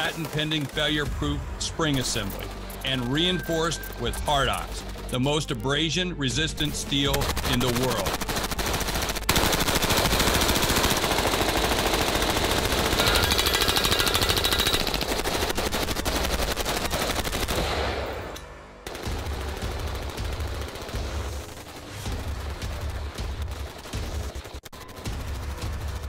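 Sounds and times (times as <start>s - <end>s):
rapid rifle fire: 0.0s - 1.3s, 6.6s - 26.0s.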